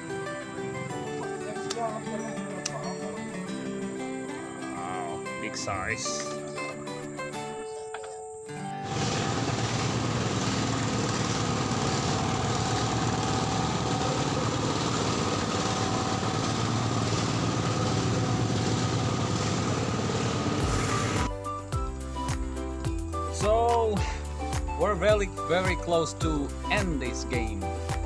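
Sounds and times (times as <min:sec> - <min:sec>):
small boat engine droning: 0:08.8 - 0:21.3.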